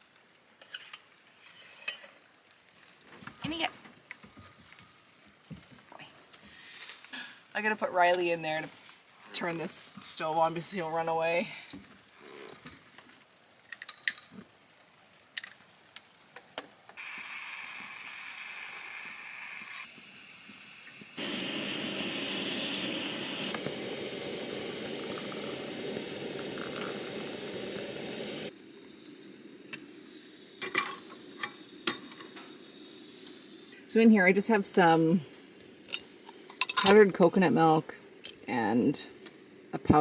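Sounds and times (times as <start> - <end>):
stove burner hissing: 17.0 - 40.0
camp stove clicks: 21.5 - 28.5, 30.6 - 32.5, 35.8 - 37.3.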